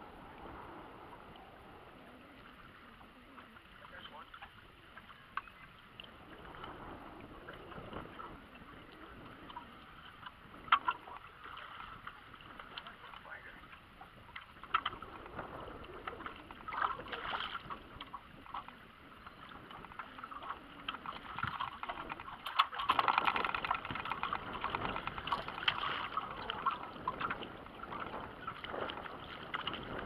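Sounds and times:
water lapping against boat hull: 0.0s - 30.0s
sharp knocks and splashes: 9.4s - 18.8s, 19.7s - 30.0s.

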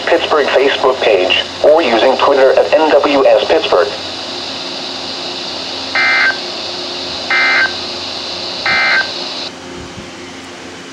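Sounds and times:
steady hiss: 0.0s - 9.5s
buzzing digital data bursts: 4.5s - 9.5s.

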